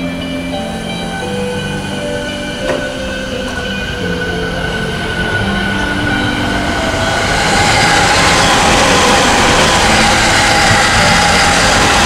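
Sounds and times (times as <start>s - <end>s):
freight train on rails: 0.0s - 12.0s
steady high tones: 0.0s - 12.0s.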